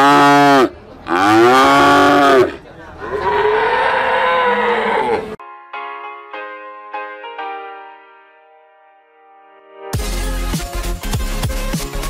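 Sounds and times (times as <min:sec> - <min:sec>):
cattle mooing: 0:00.0 - 0:05.4.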